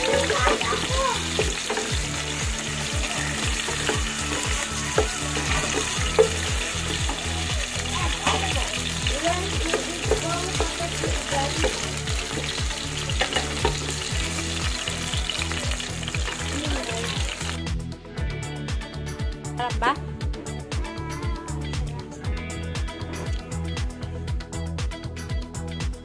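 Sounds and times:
food sizzling in hot oil: 0.0s - 17.7s.

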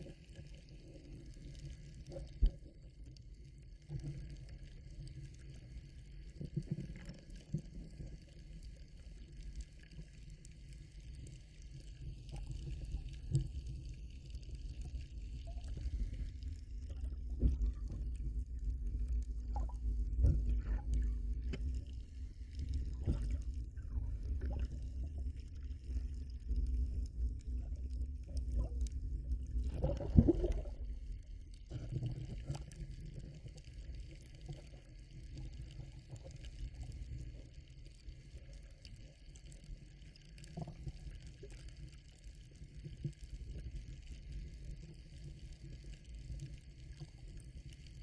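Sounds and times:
underwater rumbling wash: 10.6s - 38.2s.

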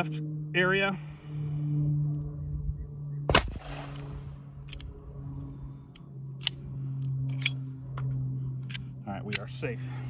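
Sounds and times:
pistol shot with echo: 3.3s - 4.2s.

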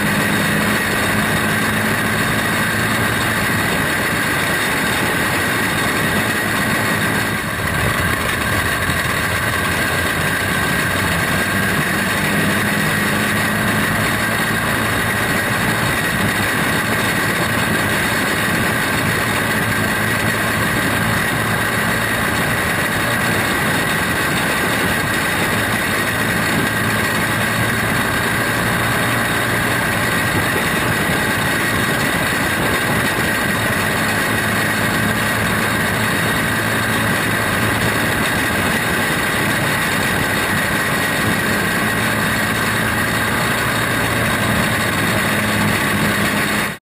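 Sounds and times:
kart engine droning: 0.0s - 46.8s
track noise: 0.0s - 46.8s.

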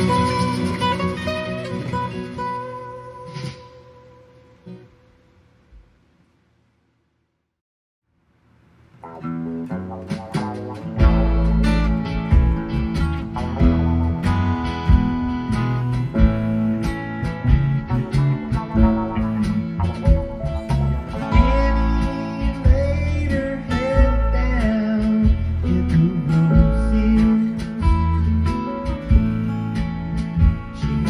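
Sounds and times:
acoustic guitar music: 0.0s - 5.9s, 8.9s - 31.0s
steady bass: 9.0s - 31.0s.

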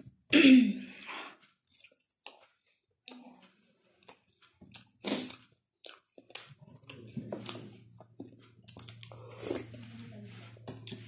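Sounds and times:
person chewing and lip-smacking: 0.9s - 9.8s.

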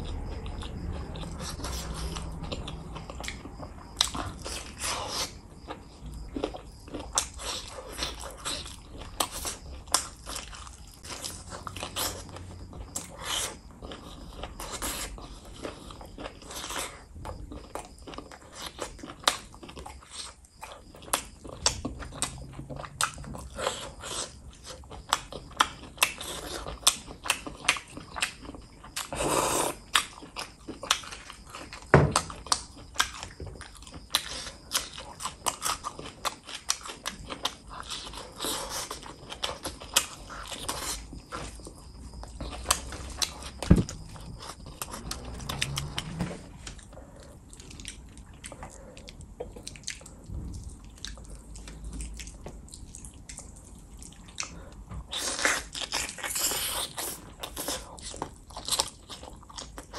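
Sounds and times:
wet chewing: 0.0s - 59.9s.

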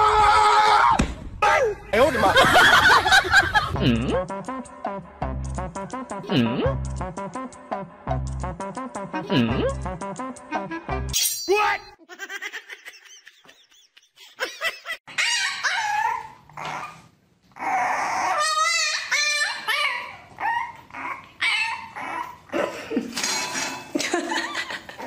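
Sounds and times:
puppy yipping and whining: 15.1s - 22.5s.

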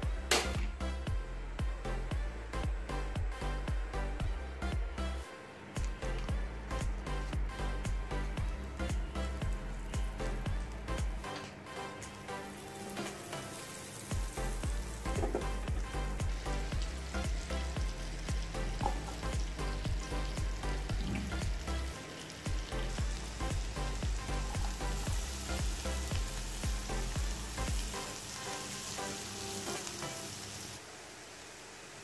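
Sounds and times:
background music with steady beat: 0.0s - 30.8s
butter sizzling in frying pan: 7.0s - 32.0s.

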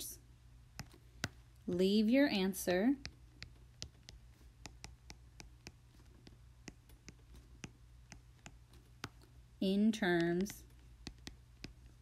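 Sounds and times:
low steady hum: 0.0s - 12.0s
stylus tapping on glass screen: 3.0s - 9.2s, 10.2s - 11.8s.

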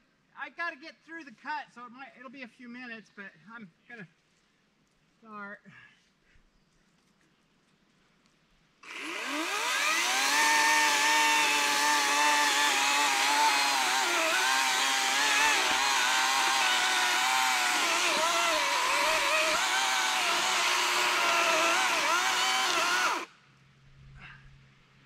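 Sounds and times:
electric chainsaw cutting wood: 8.8s - 23.3s.

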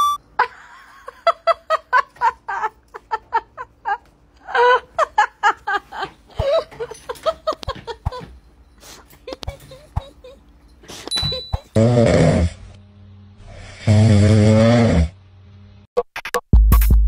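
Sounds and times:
person laughing in quick bursts: 8.9s - 11.6s.

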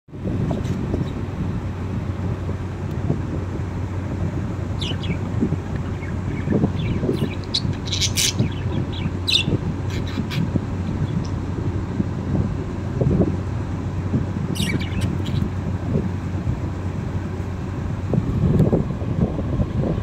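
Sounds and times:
budgerigars chirping: 4.8s - 11.4s, 14.5s - 15.6s.

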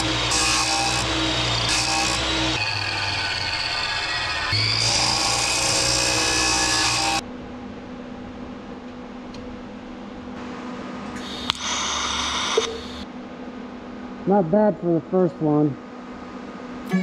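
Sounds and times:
chop saw cutting steel: 0.0s - 7.2s
welding arc hiss and buzz: 0.0s - 7.2s, 10.4s - 13.1s
welding arc click: 11.4s - 12.9s.

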